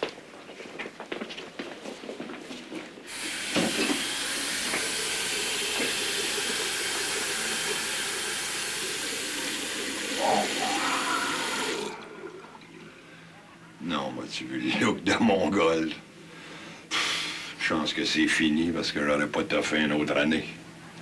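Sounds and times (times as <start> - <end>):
water running from sink tap: 3.1 - 12.8.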